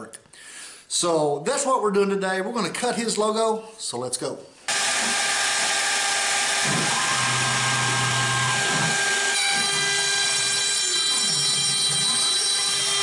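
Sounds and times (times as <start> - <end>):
lower motor tones: 4.7 - 13.0
router spindle whine: 4.7 - 13.0.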